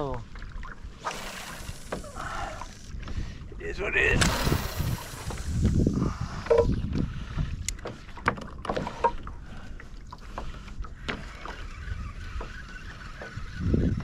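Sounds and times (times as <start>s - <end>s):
wind and water rumble: 0.0s - 14.0s.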